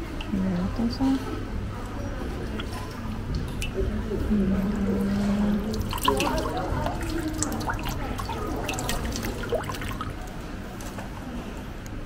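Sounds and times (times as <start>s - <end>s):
water splashing into ceramic basin: 2.3s - 4.2s, 5.1s - 10.4s.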